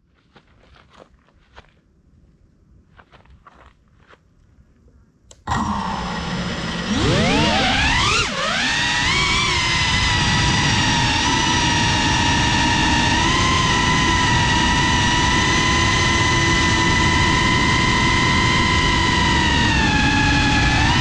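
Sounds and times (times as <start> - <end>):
drone motors whining: 5.3 - 21.0.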